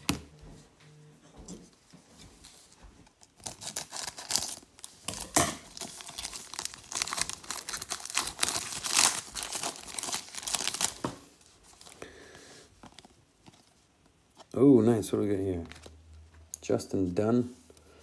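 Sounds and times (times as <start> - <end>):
foil wrapper tearing and crinkling: 3.2 - 11.1.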